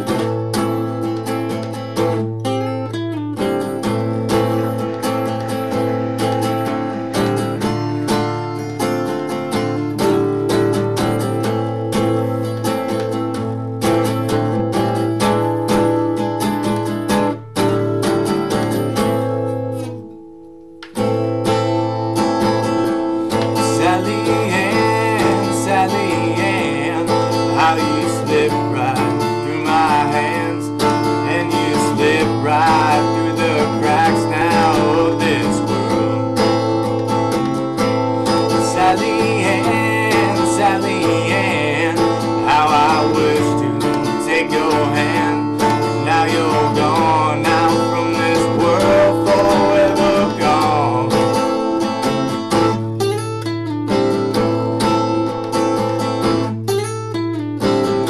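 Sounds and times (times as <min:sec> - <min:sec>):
acoustic guitar instrumental: 0:00.0 - 0:58.0.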